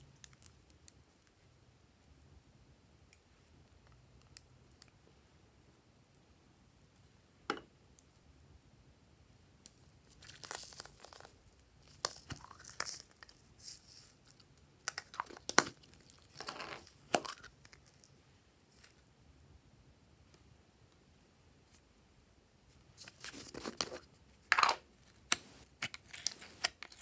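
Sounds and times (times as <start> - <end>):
crinkling and rustling: 9.7 - 19.0, 22.9 - 27.0.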